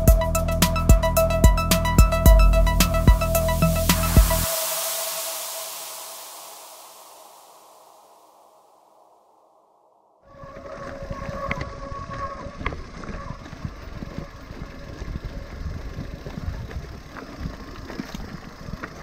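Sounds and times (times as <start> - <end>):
faint steady whine: 0.0 - 19.0
wind on microphone: 10.2 - 19.0
bike rattling over stones: 10.4 - 19.0.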